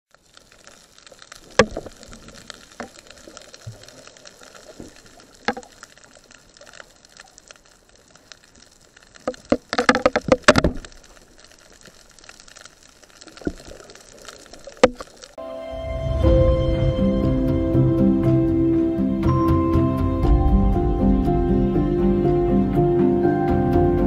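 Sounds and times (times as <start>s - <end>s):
bubbling and crackling: 0.1s - 15.4s.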